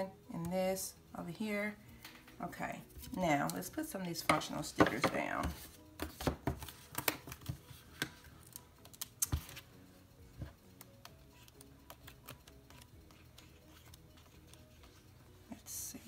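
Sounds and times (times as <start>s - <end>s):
quiet background music: 0.0s - 16.0s
paper pages handled: 11.3s - 15.1s.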